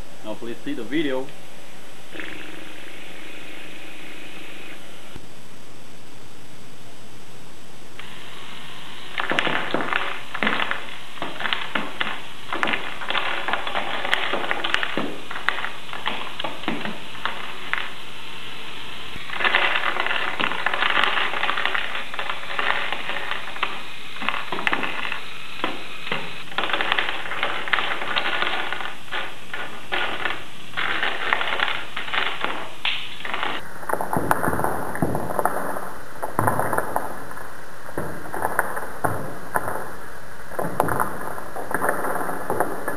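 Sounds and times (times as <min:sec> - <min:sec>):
wooden blocks clattering: 0:09.1 - 0:18.1, 0:19.0 - 0:42.9.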